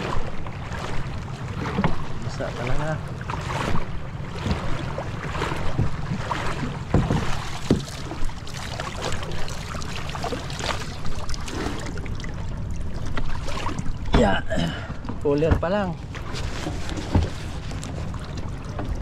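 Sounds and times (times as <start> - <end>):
seawater splashing and sloshing: 0.0 - 19.0
knocks on wooden boat: 1.6 - 2.2, 3.4 - 8.3, 14.0 - 16.3, 17.0 - 17.4.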